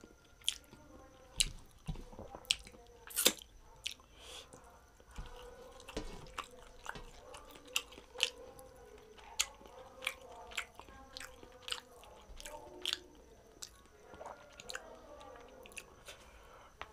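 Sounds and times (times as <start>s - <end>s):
chewing and finger-licking: 0.0s - 16.2s
lip smacks: 2.5s - 4.6s.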